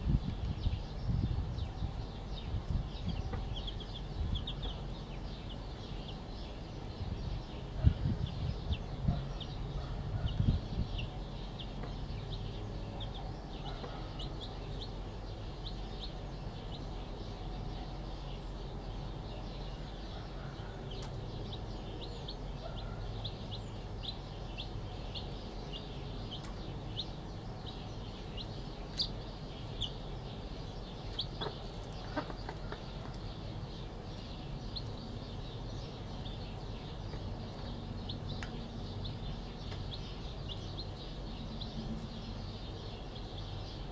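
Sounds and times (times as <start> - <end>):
chicks peeping: 0.0 - 43.9
hen clucking: 31.1 - 33.2.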